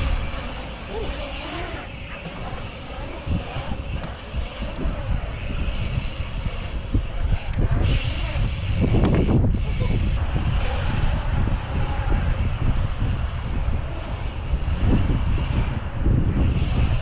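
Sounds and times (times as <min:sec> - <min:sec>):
bike tyres rolling on concrete: 0:00.0 - 0:17.0.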